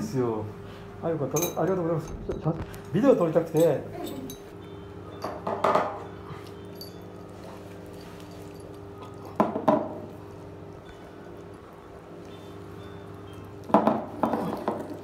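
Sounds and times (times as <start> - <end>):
steady low hum: 0.0 - 15.0
dish knocking and clinking: 5.2 - 6.0, 9.4 - 10.0, 13.7 - 14.8.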